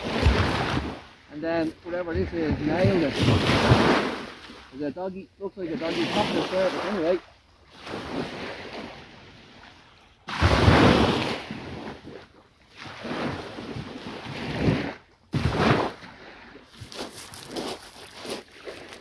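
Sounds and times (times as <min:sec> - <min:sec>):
surf breaking on a beach: 0:00.0 - 0:09.7, 0:10.3 - 0:12.2.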